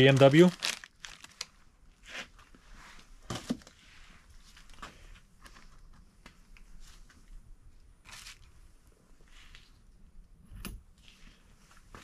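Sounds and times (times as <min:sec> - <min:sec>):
plastic packaging crinkling: 0:00.0 - 0:01.6, 0:08.0 - 0:08.5.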